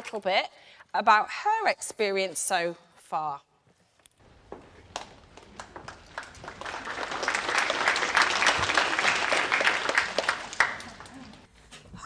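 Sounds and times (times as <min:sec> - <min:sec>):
audience applauding: 0:04.8 - 0:11.5.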